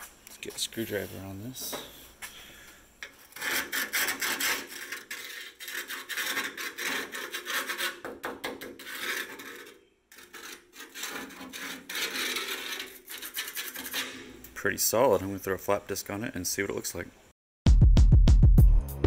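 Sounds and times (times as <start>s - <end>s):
screwdriver scraping metal: 3.0s - 14.6s.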